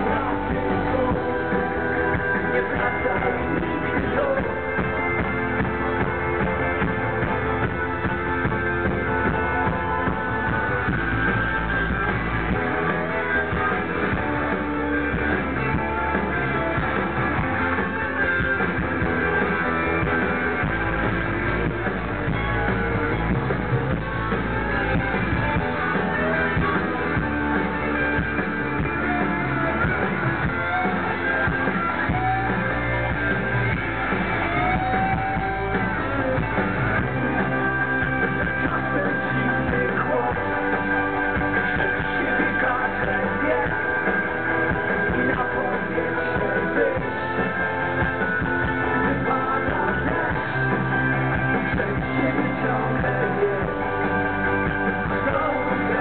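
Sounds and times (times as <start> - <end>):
person singing: 0.0 - 5.2, 34.5 - 47.8, 48.4 - 56.0
live rock band playing: 0.0 - 56.0.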